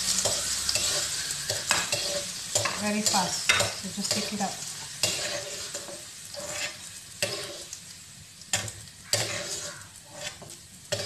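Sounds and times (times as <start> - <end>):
ghee sizzling in a wok: 0.0 - 11.0
metal ladle stirring: 9.2 - 11.0.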